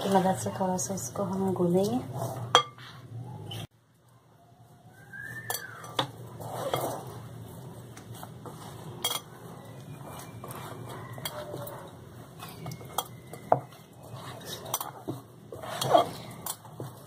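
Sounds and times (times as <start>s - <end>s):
dough rubbing and squishing: 6.2s - 17.0s.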